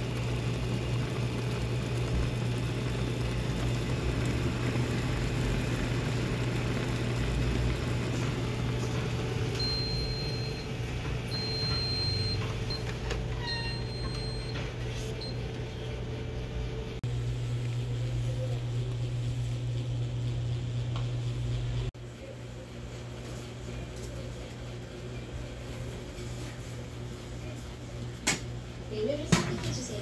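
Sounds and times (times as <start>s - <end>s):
cooking machine hum: 0.0s - 30.0s
high beeps: 9.6s - 10.7s, 11.3s - 12.9s.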